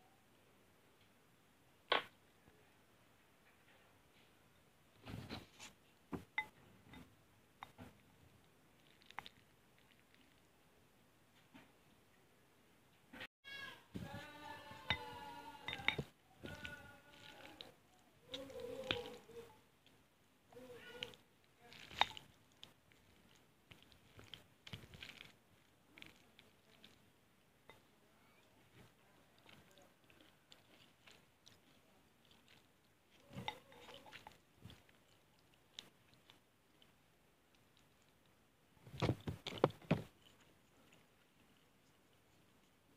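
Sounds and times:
chewing noodles: 0:08.4 - 0:10.5, 0:14.0 - 0:42.9.

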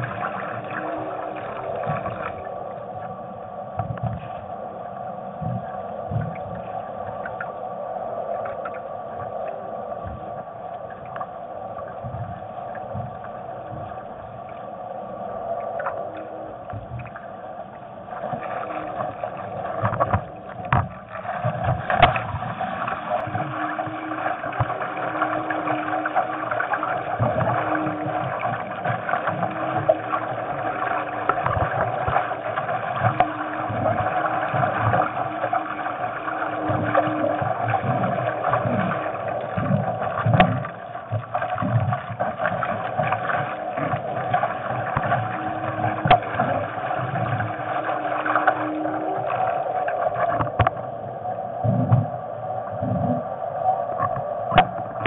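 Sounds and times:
low hum: 0:00.0 - 0:55.0
water rushing along boat: 0:00.0 - 0:55.0
low knocks against hull: 0:19.8 - 0:22.4.

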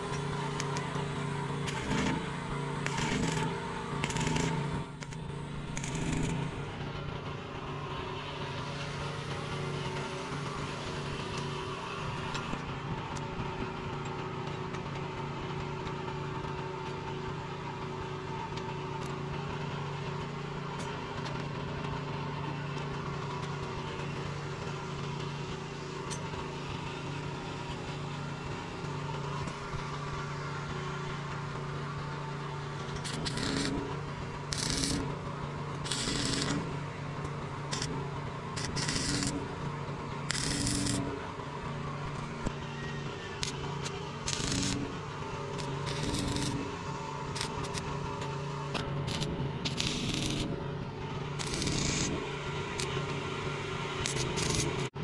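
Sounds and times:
arc welder crackling bursts: 0:00.0 - 0:06.7, 0:32.9 - 0:42.5, 0:43.4 - 0:50.6, 0:51.2 - 0:53.2, 0:53.9 - 0:54.9
engine-like hum: 0:00.0 - 0:55.0.

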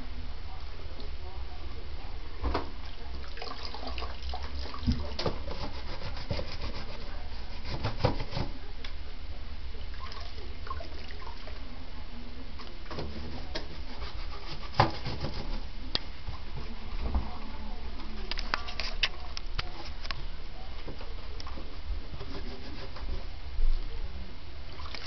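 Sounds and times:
scrubbing on metal washboard: 0:04.8 - 0:08.6, 0:12.9 - 0:15.7, 0:22.2 - 0:23.2.

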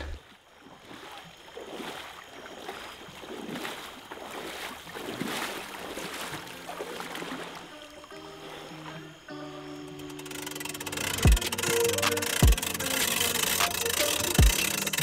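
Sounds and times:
water sloshing around wading legs: 0:00.0 - 0:09.3.

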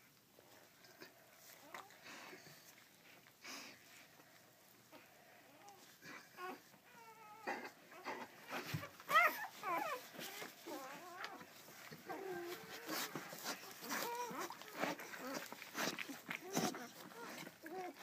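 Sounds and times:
dog whimpering: 0:04.9 - 0:18.0.

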